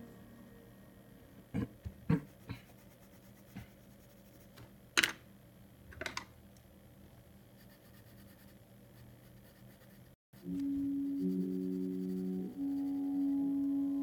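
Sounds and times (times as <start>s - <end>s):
pencil tapping and scratching paper: 2.1s - 4.7s.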